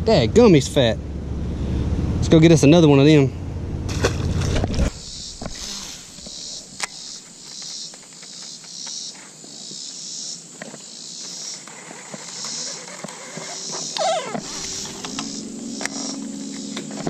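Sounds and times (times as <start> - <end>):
insects chirring in pulsing waves: 4.4 - 17.0.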